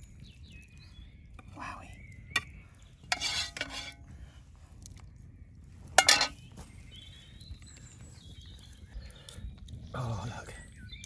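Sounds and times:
metal utensils clattering on pot: 3.1s - 4.0s, 6.0s - 6.4s.

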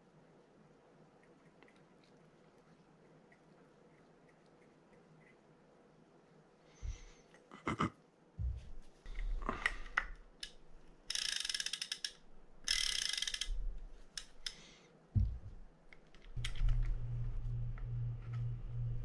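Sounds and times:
metal ratchet clicking: 10.4s - 14.6s
low steady hum: 12.0s - 19.0s.

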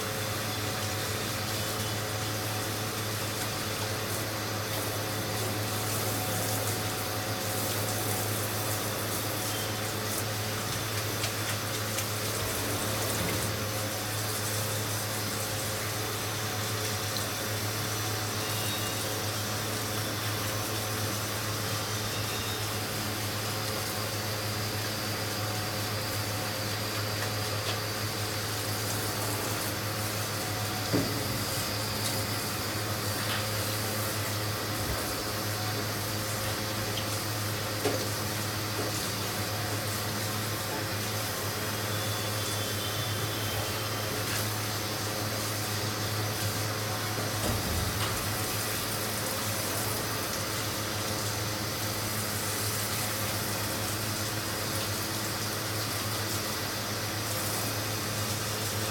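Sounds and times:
water spraying into a metal tub: 0.0s - 58.9s.

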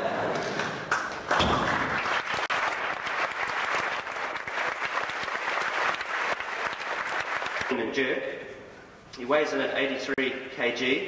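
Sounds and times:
audience applauding: 0.9s - 7.8s.

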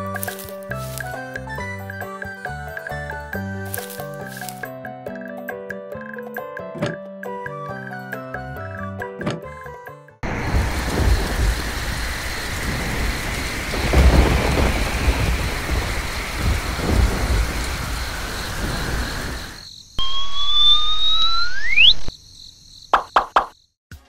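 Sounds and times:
heavy rain: 10.2s - 19.6s
thunder rolling: 10.2s - 19.6s
rising whistling tone: 18.6s - 22.1s.

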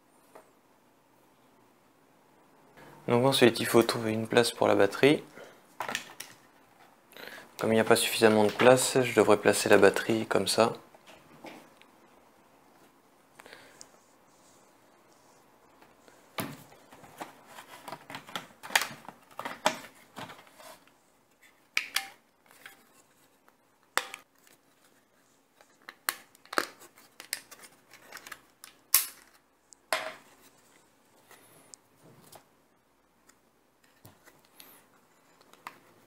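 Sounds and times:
plastic parts clicking and tapping: 16.4s - 20.5s, 23.9s - 24.3s.

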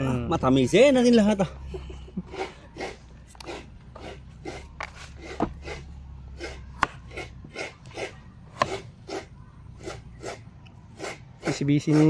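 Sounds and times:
knife slicing squash: 2.8s - 10.0s
knife striking wooden cutting board: 6.8s - 7.2s, 8.6s - 8.8s.

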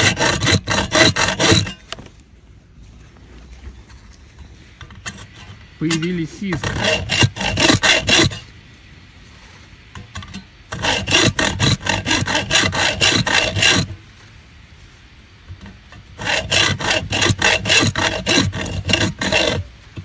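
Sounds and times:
hacksaw rasping strokes: 0.0s - 2.0s, 5.1s - 8.4s, 10.7s - 14.0s, 16.2s - 20.0s.

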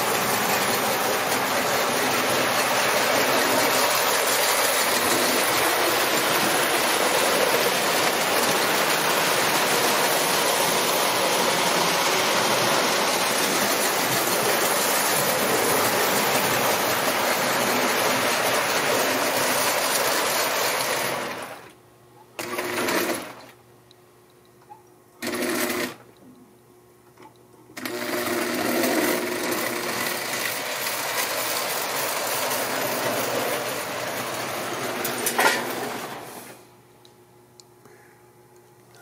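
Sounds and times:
toy train motor whirring: 0.0s - 21.6s, 28.0s - 35.8s.

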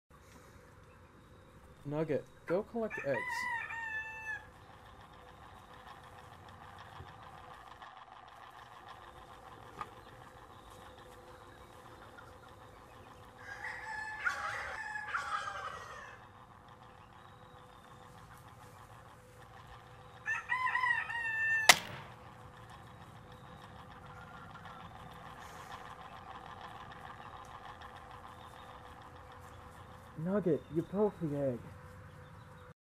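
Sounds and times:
small robot motor rattling: 1.4s - 32.7s
rooster crowing: 2.8s - 4.6s, 13.3s - 16.4s, 20.2s - 21.8s
sharp click: 21.6s - 22.2s.

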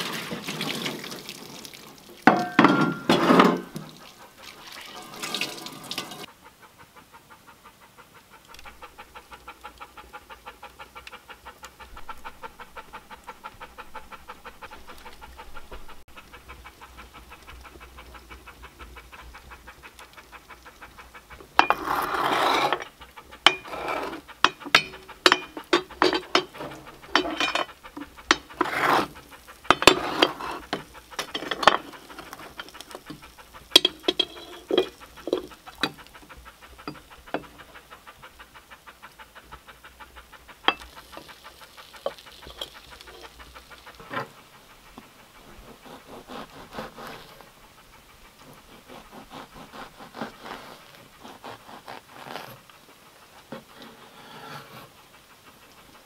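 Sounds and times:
water splashing in a sink: 0.0s - 6.3s
wood fire crackling: 0.0s - 6.3s, 8.3s - 54.0s
metal tool scraping and knocking: 2.3s - 3.9s, 21.6s - 36.0s, 40.7s - 40.9s.

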